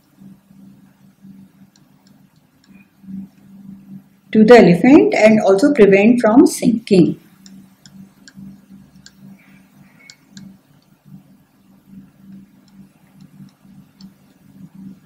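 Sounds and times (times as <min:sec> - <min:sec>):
low background hum: 0:00.0 - 0:15.0
stylus tapping on pen tablet: 0:01.7 - 0:02.8, 0:07.4 - 0:09.2, 0:12.2 - 0:14.8.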